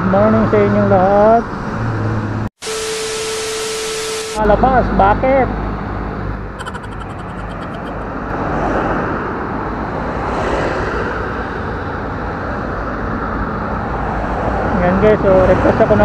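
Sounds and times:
road traffic hum: 0.0s - 2.5s, 4.4s - 16.0s
vehicle passing by: 7.3s - 16.0s.

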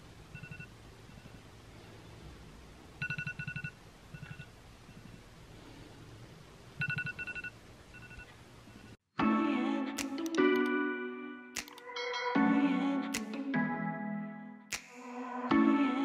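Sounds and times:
telephone ringing: 3.0s - 4.5s, 6.8s - 8.3s.

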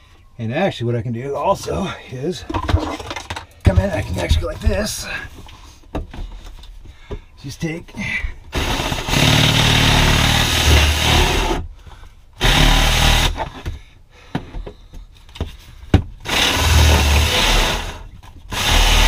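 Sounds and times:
cordless drill boring into wood: 8.5s - 11.6s, 12.4s - 13.4s, 16.2s - 19.0s.

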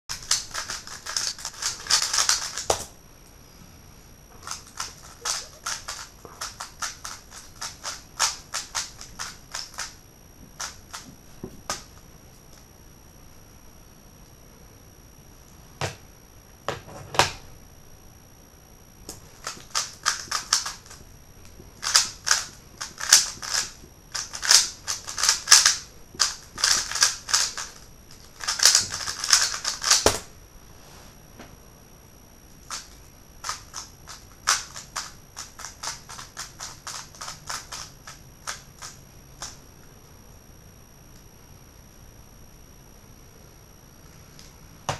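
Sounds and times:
speed cube plastic clicking: 0.1s - 2.9s, 4.4s - 10.0s, 19.1s - 21.0s, 21.8s - 30.3s, 32.7s - 39.6s.

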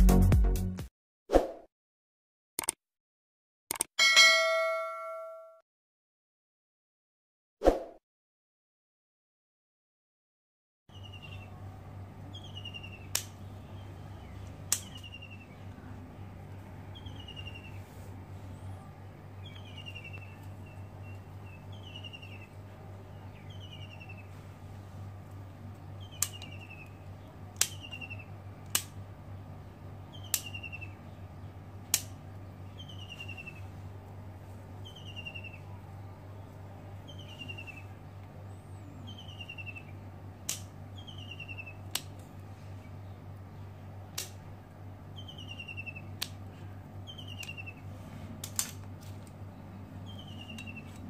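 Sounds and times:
pruning shears snipping: 14.4s - 15.2s, 26.1s - 29.0s, 30.2s - 30.8s, 31.8s - 32.3s, 40.4s - 40.8s, 41.8s - 42.3s, 44.1s - 44.5s, 48.4s - 49.4s.

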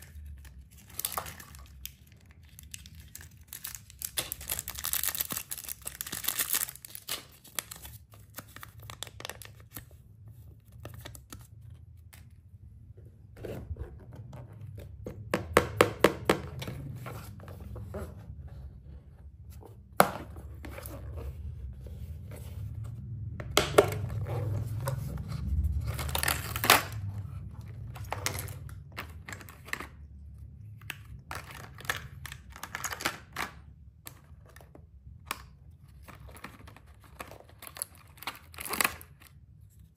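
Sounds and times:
plastic wrapper crinkling and tearing: 0.0s - 9.9s, 25.8s - 27.1s, 36.0s - 39.4s.

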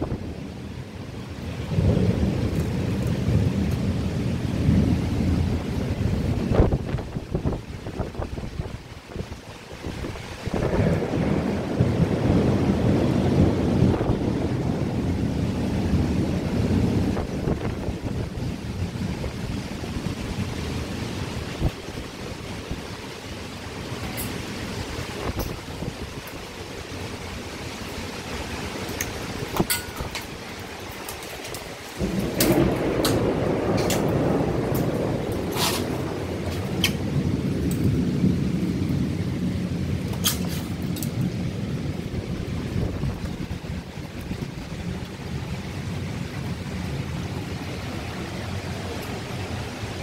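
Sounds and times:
deep thunder rumble: 0.0s - 22.9s, 28.1s - 50.0s
heavy rain: 0.0s - 50.0s
wind: 0.0s - 50.0s
sharp hiss or splash: 35.5s - 36.1s.

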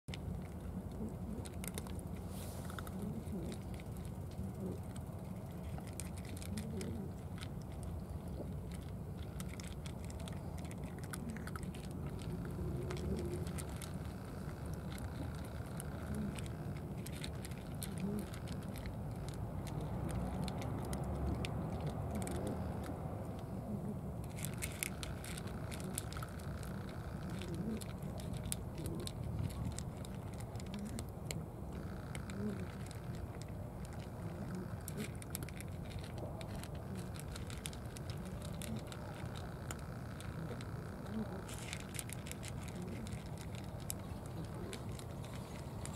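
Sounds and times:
cats chewing: 0.1s - 45.9s.

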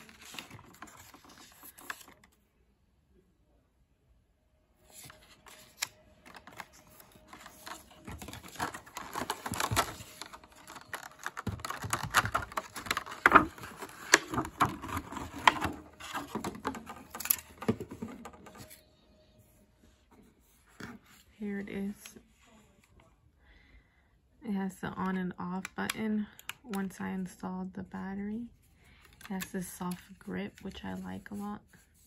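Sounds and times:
plastic packaging crackling: 5.0s - 18.0s.

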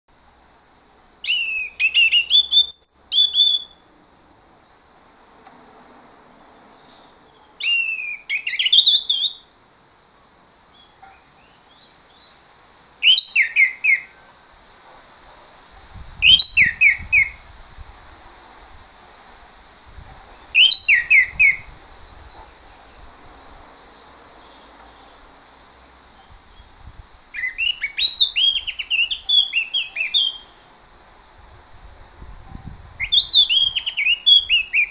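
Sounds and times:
steady high hiss: 0.1s - 34.9s
bird singing whistled notes: 1.2s - 4.4s, 6.3s - 9.6s, 10.7s - 12.4s, 13.0s - 14.3s, 16.2s - 17.4s, 20.5s - 22.5s, 26.0s - 26.7s, 27.4s - 30.7s, 33.0s - 34.9s.

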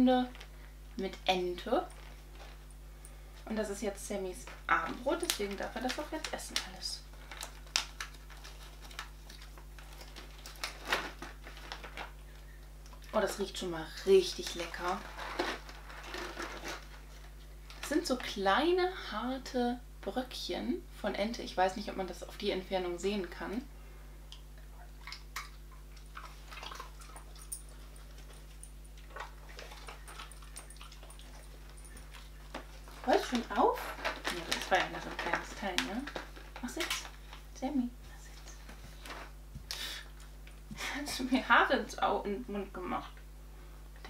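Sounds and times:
treat bag rustling: 4.9s - 12.2s, 14.2s - 18.0s, 26.3s - 37.6s
dog chewing hard treats: 25.9s - 33.0s.

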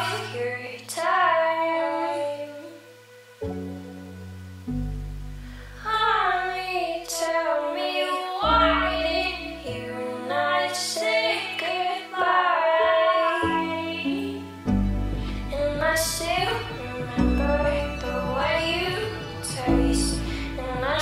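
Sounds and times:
low bass notes: 4.3s - 6.6s, 14.6s - 21.0s
woman singing high: 5.8s - 14.5s, 15.5s - 21.0s.

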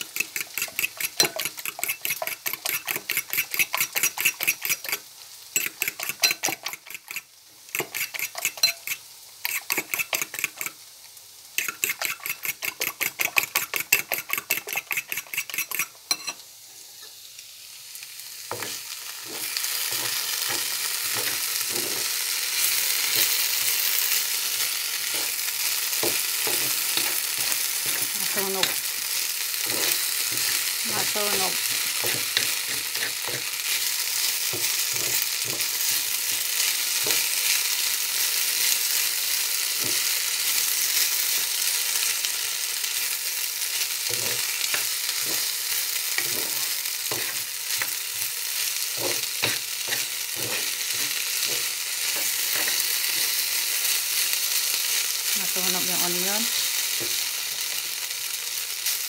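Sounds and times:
potatoes sizzling in oil: 0.0s - 59.0s
fork beating eggs in ceramic bowl: 0.1s - 5.0s, 5.6s - 7.2s, 7.8s - 10.7s, 11.6s - 16.3s, 29.7s - 33.5s
metal spatula scraping: 0.1s - 5.0s, 5.6s - 7.2s, 7.8s - 10.7s, 11.6s - 17.2s, 18.5s - 37.6s, 44.0s - 54.3s.

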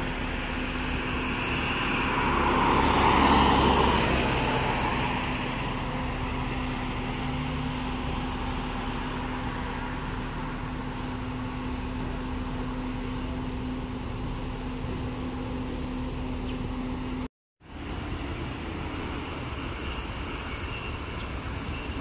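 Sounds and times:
vehicle passing by: 0.0s - 10.9s
steady traffic hum: 0.0s - 22.0s.

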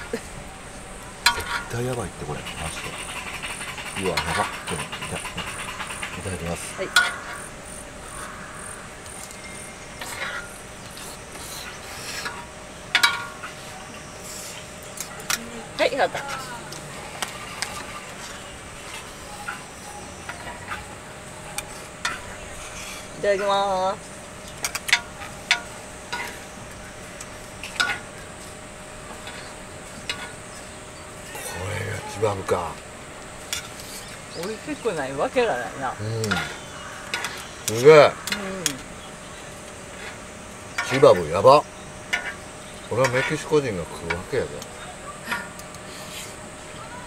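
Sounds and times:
faint steady hum: 0.0s - 47.0s
utensils clinking against a pan: 1.2s - 1.8s, 6.9s - 7.4s, 12.2s - 13.6s, 36.3s - 38.4s, 40.8s - 41.2s, 42.1s - 44.3s
utensil scraping a pan: 1.3s - 7.4s, 43.0s - 44.3s.

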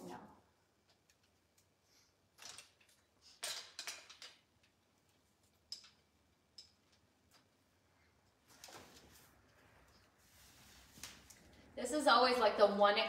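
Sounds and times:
fabric rustling: 8.4s - 11.4s.

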